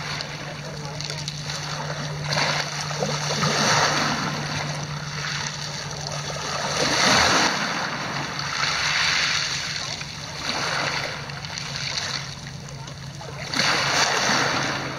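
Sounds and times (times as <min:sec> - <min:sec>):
waves washing over pebbles: 0:00.0 - 0:14.9.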